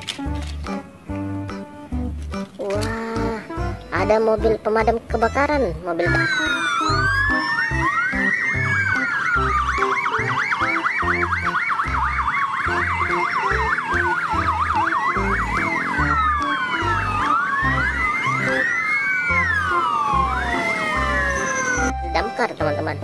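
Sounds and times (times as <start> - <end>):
background music with steady beat: 0.0 - 18.8
fire engine sirens wailing: 6.0 - 23.0.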